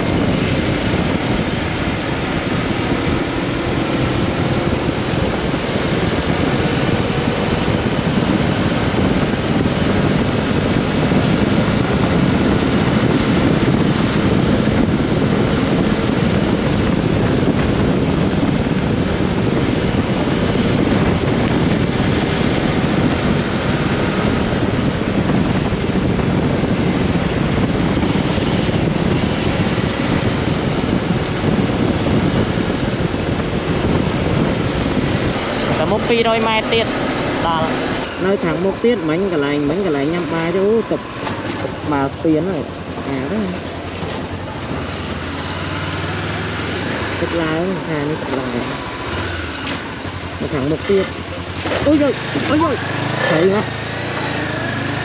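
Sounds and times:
motorcycle engine running: 0:00.0 - 0:55.0
wind rush on microphone: 0:00.0 - 0:55.0.

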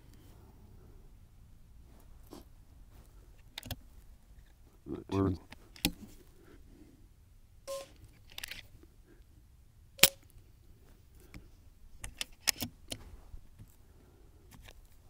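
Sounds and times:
rifle lever clicking: 0:03.6 - 0:03.8, 0:12.0 - 0:13.0.

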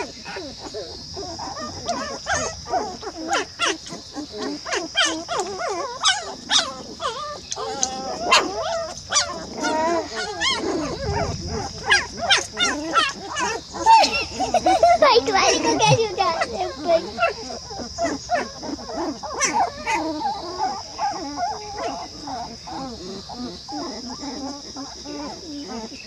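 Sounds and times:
puppies whining and squealing: 0:00.0 - 0:26.0.

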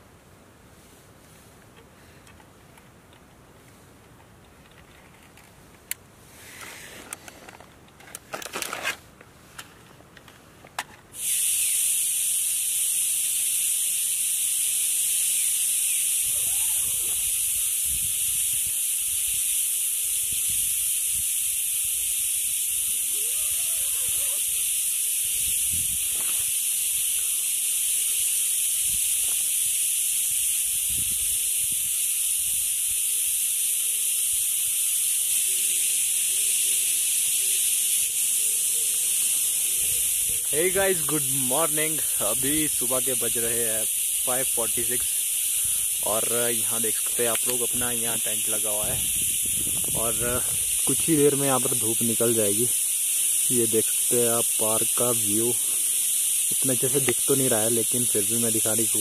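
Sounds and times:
faint clicks and rustles: 0:01.2 - 0:11.1
high-pitched insect chorus: 0:11.1 - 0:59.0.

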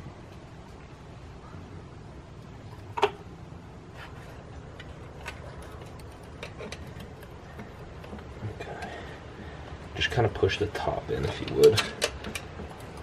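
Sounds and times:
steady low hum: 0:00.0 - 0:13.0
hand tool clicks and ticks: 0:11.3 - 0:13.0.

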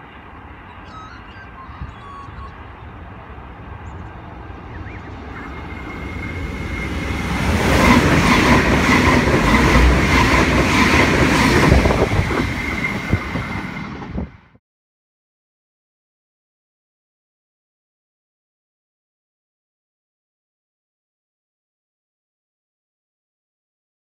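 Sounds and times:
train high whine: 0:00.0 - 0:14.6.

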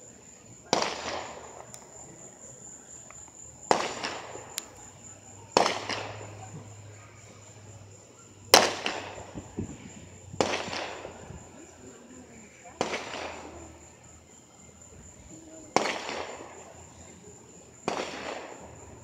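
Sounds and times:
fireworks bangs: 0:00.6 - 0:07.0, 0:08.5 - 0:11.6, 0:12.8 - 0:13.7, 0:15.8 - 0:16.8, 0:17.8 - 0:19.0.

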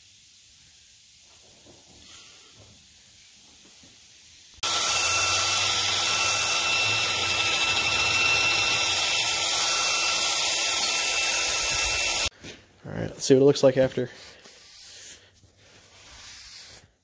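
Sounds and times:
drill wire wheel whining: 0:04.6 - 0:12.3.

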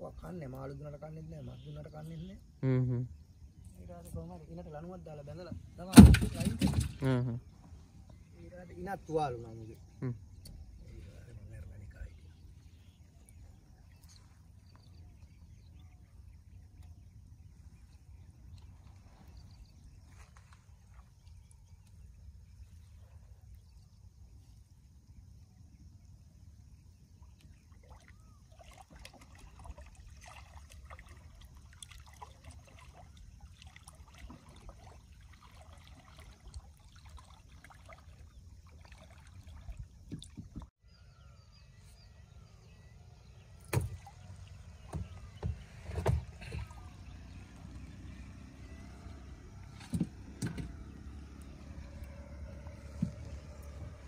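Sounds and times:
sharp knocks against boat: 0:05.8 - 0:07.0, 0:43.7 - 0:44.2, 0:44.8 - 0:46.9, 0:49.7 - 0:50.9, 0:52.8 - 0:54.0
net hauled from water: 0:05.8 - 0:07.7, 0:27.8 - 0:40.7, 0:43.5 - 0:54.0
water splashes and drips: 0:27.2 - 0:40.7, 0:43.6 - 0:54.0.

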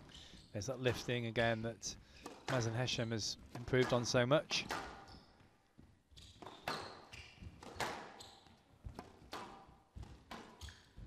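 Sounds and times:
shoes squeaking on court floor: 0:00.0 - 0:04.1, 0:04.8 - 0:11.0
squash ball hits: 0:02.2 - 0:02.7, 0:06.4 - 0:08.2, 0:08.8 - 0:10.8.

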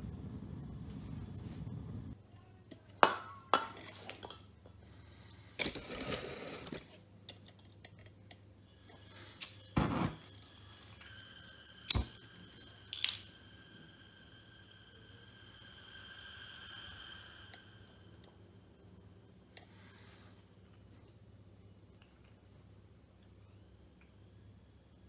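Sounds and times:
gas flame rushing: 0:00.0 - 0:02.2, 0:08.8 - 0:18.4
thin whistle of flowing gas: 0:08.7 - 0:20.4
burner relighting pop: 0:11.9 - 0:12.2.

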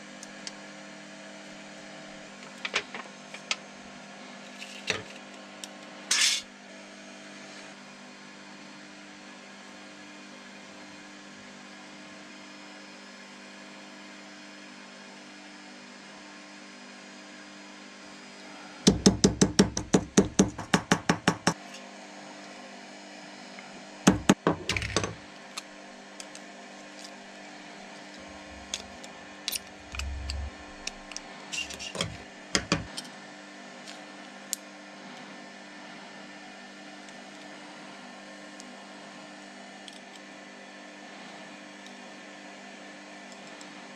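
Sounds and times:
steady electrical hum: 0:01.7 - 0:06.5, 0:27.9 - 0:33.0
hammer tapping metal sheet: 0:18.9 - 0:21.6.

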